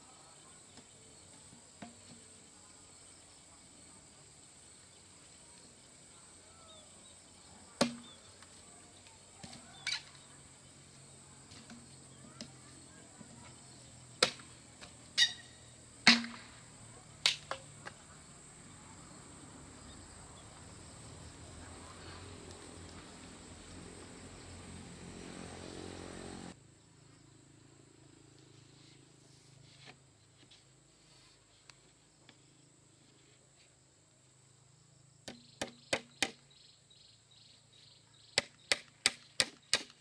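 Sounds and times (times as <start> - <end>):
high insect hum: 0.0 - 40.0
bamboo poles knocking: 1.7 - 2.3, 7.8 - 8.1, 16.0 - 16.5, 35.3 - 36.4.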